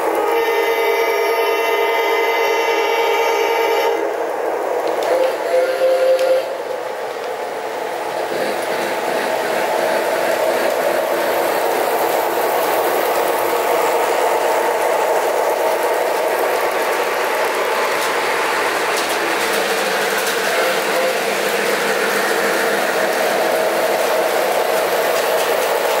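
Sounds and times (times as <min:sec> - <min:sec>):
model trains rolling rumble: 0:00.0 - 0:26.0
light clicking of train cars: 0:04.7 - 0:26.0.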